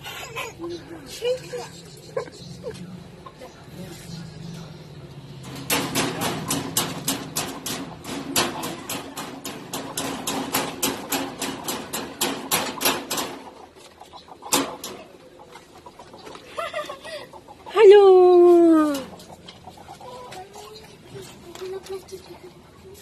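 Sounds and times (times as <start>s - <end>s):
rapid sharp clicking: 5.5s - 13.6s.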